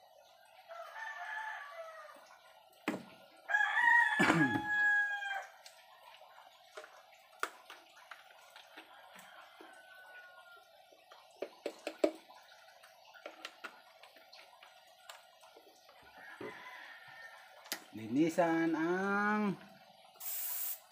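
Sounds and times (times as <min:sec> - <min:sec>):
rooster crowing: 0:00.7 - 0:02.2, 0:03.5 - 0:05.6, 0:09.0 - 0:10.7, 0:16.1 - 0:17.7.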